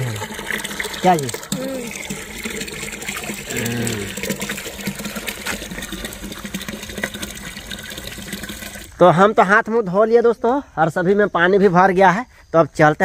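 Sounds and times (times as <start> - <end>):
water splashing and trickling: 0.0 - 9.9.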